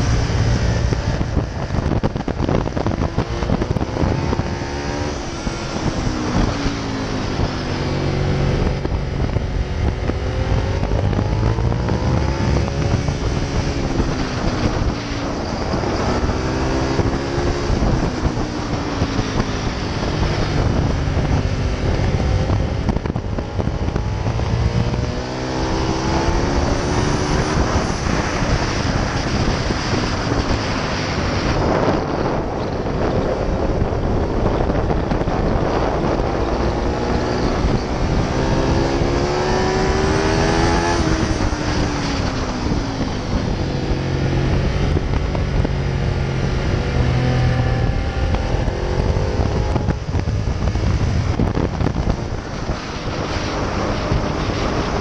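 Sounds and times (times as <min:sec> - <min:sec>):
motorcycle engine accelerating: 0:00.0 - 0:55.0
wind rush: 0:00.0 - 0:55.0.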